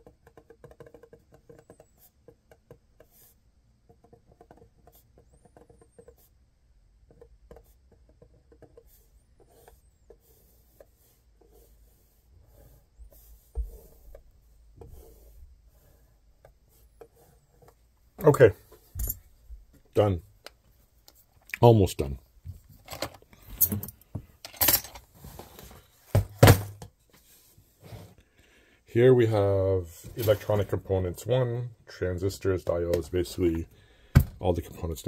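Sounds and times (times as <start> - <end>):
marker scratching on paper: 0.0 - 6.4, 7.1 - 17.8.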